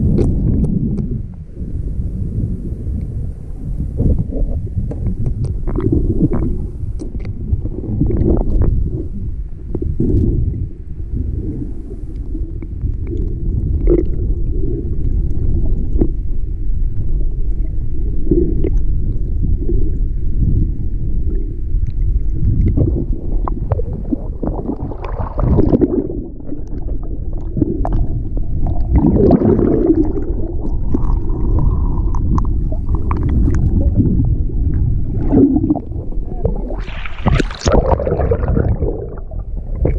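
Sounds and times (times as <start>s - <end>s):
muffled underwater water rumble: 0.0s - 39.9s
faint clicks and gurgles: 4.0s - 9.1s, 12.0s - 16.3s, 21.3s - 39.9s.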